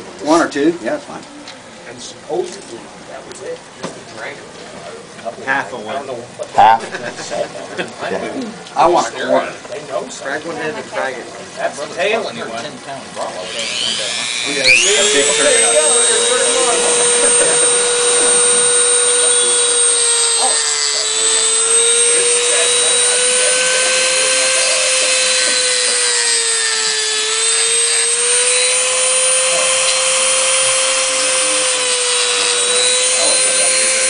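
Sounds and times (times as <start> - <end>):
rotary tool cutting coral: 13.2 - 34.0.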